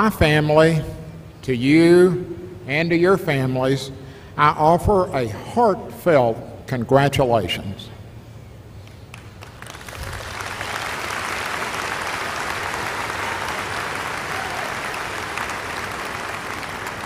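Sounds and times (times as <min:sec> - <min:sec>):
large crowd applauding: 0:09.1 - 0:17.0.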